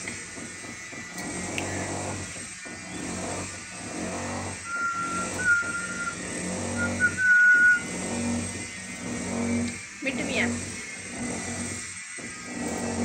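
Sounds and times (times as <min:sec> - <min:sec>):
parakeet whistling: 0:04.7 - 0:08.0.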